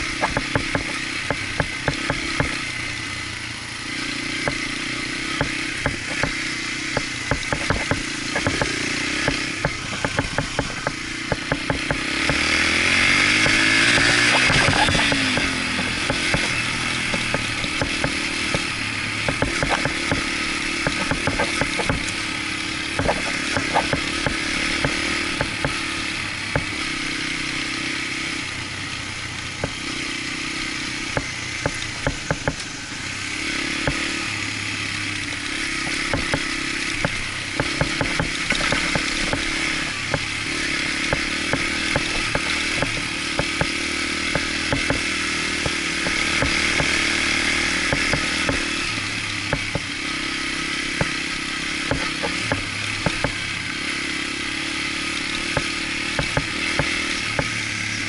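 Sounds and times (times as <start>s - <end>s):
sharp knocks and clatter: 0.0s - 2.7s, 4.4s - 4.7s, 5.3s - 22.3s, 22.9s - 27.0s, 29.6s - 29.9s, 31.1s - 32.7s, 33.8s - 34.2s, 35.7s - 50.0s, 50.9s - 53.4s, 55.4s - 57.6s
dirt bike engine running: 0.0s - 58.0s.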